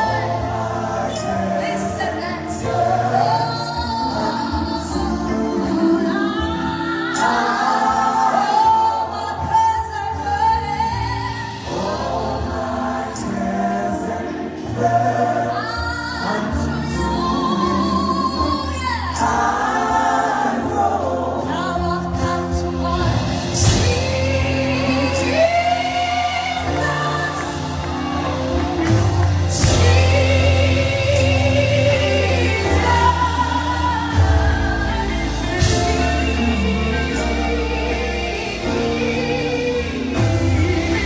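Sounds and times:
choir backing voices: 0.0s - 10.5s, 11.1s - 41.0s
gospel band playing: 0.0s - 41.0s
woman singing lead: 0.0s - 41.0s.

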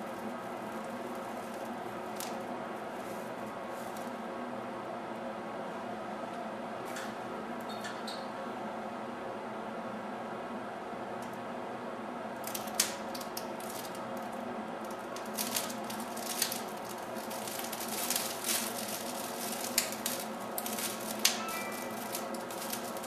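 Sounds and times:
crackling sparks: 0.0s - 4.3s, 12.4s - 23.0s
gas burner hissing: 14.8s - 23.0s.

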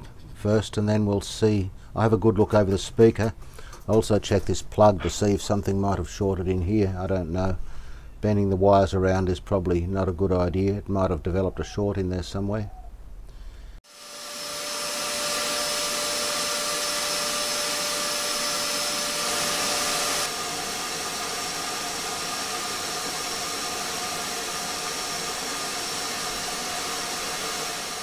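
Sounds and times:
vacuum cleaner running: 13.8s - 28.0s.

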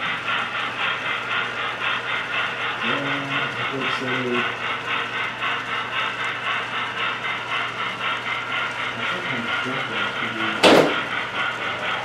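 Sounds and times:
model train clattering: 0.0s - 12.0s
loud knock: 10.6s - 11.1s.

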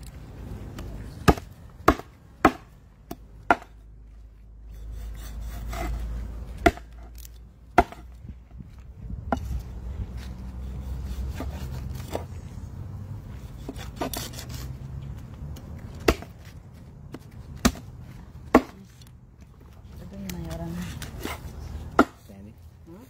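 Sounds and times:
cleaver chopping on wooden board: 1.2s - 3.8s, 6.6s - 7.0s, 7.8s - 8.1s, 16.0s - 16.3s, 17.6s - 17.9s, 18.5s - 18.8s, 21.2s - 22.2s.

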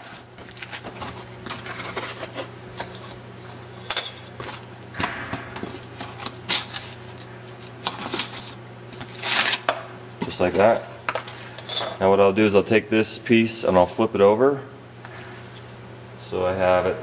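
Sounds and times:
foam board crackling and rustling: 0.0s - 2.5s.

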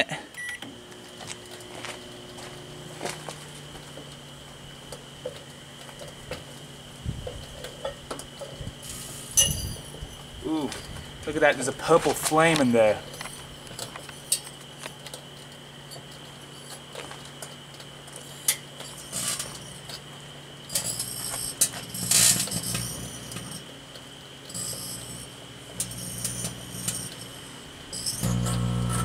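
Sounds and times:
microwave oven humming: 0.0s - 11.9s, 17.3s - 29.0s
sharp electrical crackles: 8.6s - 15.2s, 20.7s - 23.7s.

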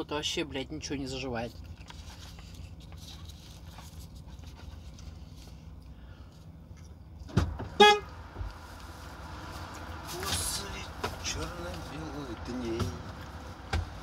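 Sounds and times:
low hum in truck cab: 0.0s - 14.0s.

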